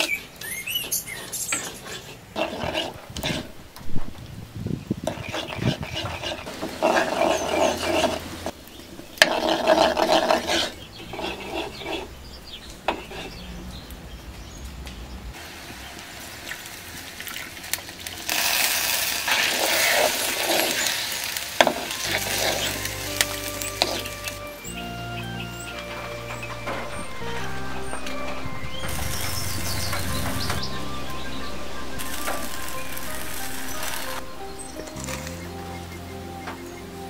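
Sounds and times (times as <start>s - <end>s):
hot oil sizzling: 15.4s - 24.6s, 28.7s - 35.3s
background music: 20.8s - 37.0s.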